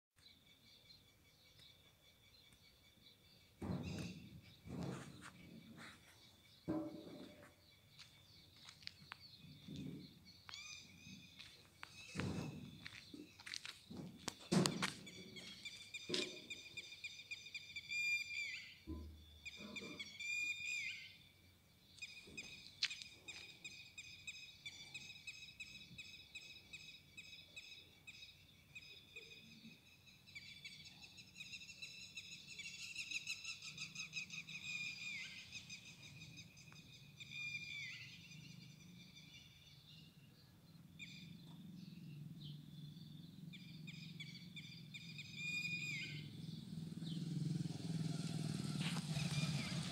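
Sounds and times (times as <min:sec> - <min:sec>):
sharp knocks: 0:03.6 - 0:05.3, 0:06.7 - 0:07.4.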